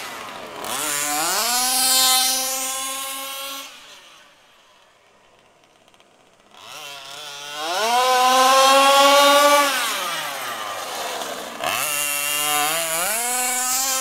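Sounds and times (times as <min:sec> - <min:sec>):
rc car engine revving: 0:00.0 - 0:04.6, 0:05.6 - 0:14.0.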